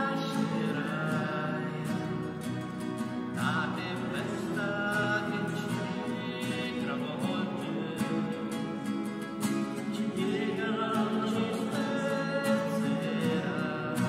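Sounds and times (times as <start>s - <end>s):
acoustic guitars strumming: 0.0s - 14.0s
voices singing a hymn: 9.9s - 14.0s.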